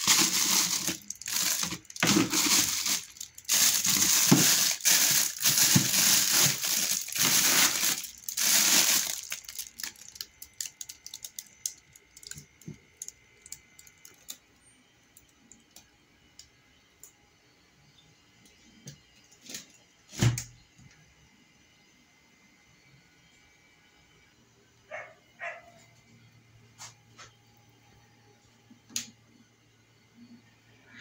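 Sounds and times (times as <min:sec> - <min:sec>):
plastic bottles being shifted: 0:00.0 - 0:10.3
plastic bags crinkling: 0:00.0 - 0:14.4.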